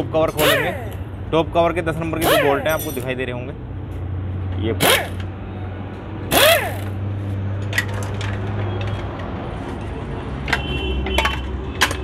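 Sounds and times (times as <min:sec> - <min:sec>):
power wrench burst: 0:00.3 - 0:01.0, 0:02.2 - 0:02.9, 0:04.8 - 0:05.2, 0:06.3 - 0:07.0
metallic clinks of bolts and tools: 0:02.2 - 0:03.2, 0:10.5 - 0:12.0.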